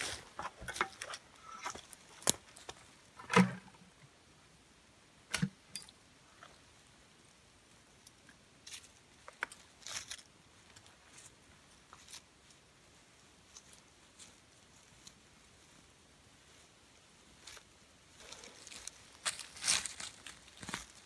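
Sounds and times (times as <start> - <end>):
plastic pail thumping on ground: 3.2 - 3.8
dry twigs crackling: 8.6 - 12.6, 17.4 - 21.0.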